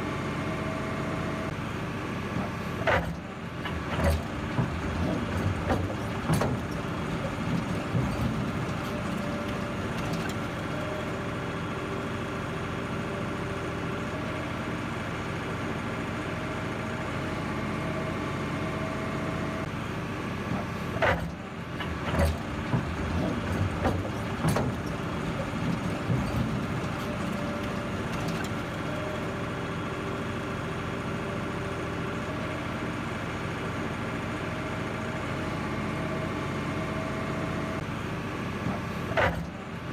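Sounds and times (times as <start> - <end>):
diesel engine running: 0.0 - 39.9
metallic knocks and clanks: 3.0 - 10.5, 21.0 - 28.8.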